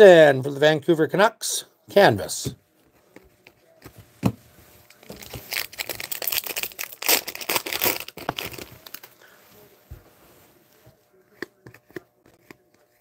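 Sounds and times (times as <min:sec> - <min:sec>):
foil wrapper crinkling and tearing: 0:04.9 - 0:09.1.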